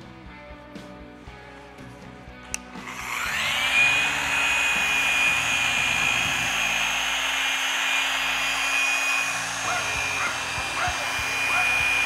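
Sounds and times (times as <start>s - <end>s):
background music: 0.0s - 7.4s
polisher whining: 2.5s - 12.0s.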